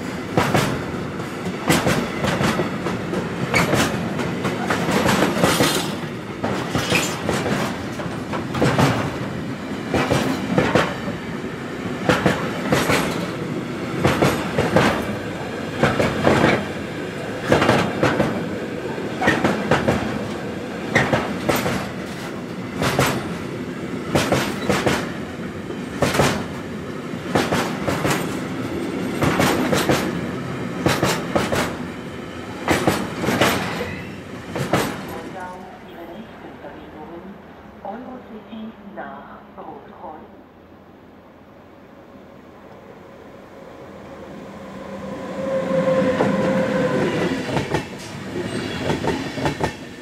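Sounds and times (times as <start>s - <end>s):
train rumble: 0.0s - 38.7s, 43.6s - 50.0s
train wheels clacking over rail joints: 0.3s - 9.3s, 9.9s - 11.1s, 12.0s - 13.4s, 14.0s - 15.1s, 15.8s - 16.7s, 17.4s - 18.4s, 19.2s - 23.4s, 24.1s - 25.2s, 26.0s - 26.6s, 27.3s - 30.2s, 30.8s - 31.8s, 32.6s - 35.3s, 46.2s - 49.9s.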